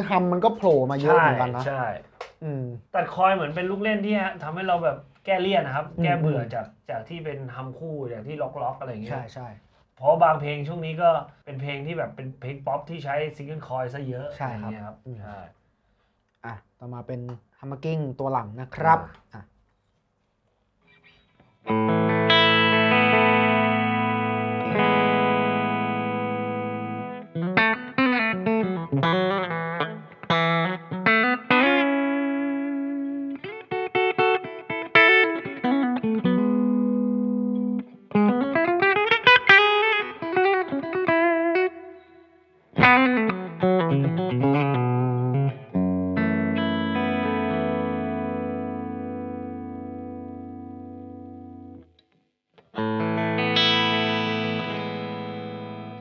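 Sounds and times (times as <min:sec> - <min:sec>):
clean electric guitar: 0:20.9 - 0:52.0, 0:52.6 - 0:56.0.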